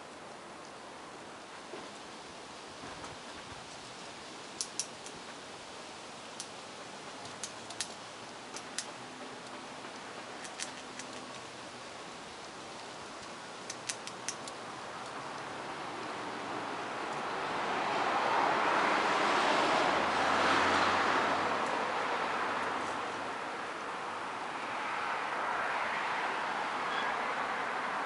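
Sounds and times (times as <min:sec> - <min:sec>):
steady hiss: 0:00.0 - 0:28.0
squirrel chewing clicks: 0:04.6 - 0:05.2, 0:06.3 - 0:11.6, 0:12.4 - 0:15.5.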